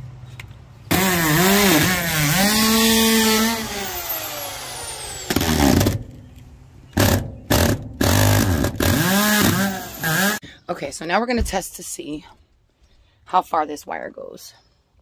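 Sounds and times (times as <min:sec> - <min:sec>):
drill trigger bursts: 0:00.9 - 0:06.0, 0:07.0 - 0:10.4
power drill motor whining: 0:00.9 - 0:06.0, 0:07.0 - 0:10.4.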